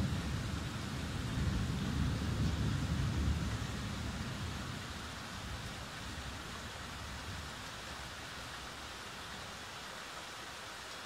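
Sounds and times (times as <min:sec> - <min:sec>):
low thunder rumble: 0:00.0 - 0:04.8.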